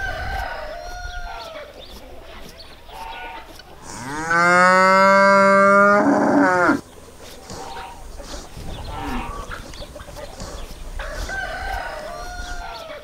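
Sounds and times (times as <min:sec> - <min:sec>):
cow mooing: 0:03.8 - 0:06.8, 0:07.5 - 0:09.5.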